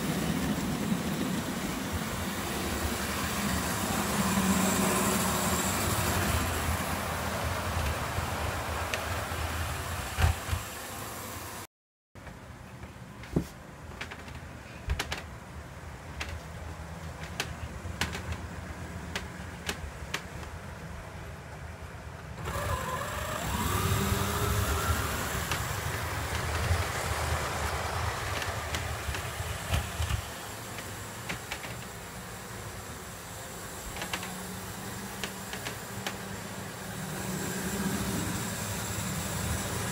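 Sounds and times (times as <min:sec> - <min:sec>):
model train rumbling: 0:00.0 - 0:11.6, 0:16.0 - 0:39.9
rising whine: 0:22.4 - 0:29.8, 0:36.3 - 0:39.9.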